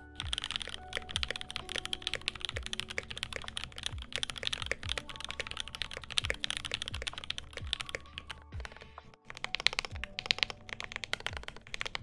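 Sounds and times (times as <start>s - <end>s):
rapid mechanical keyboard typing: 0.0s - 12.0s.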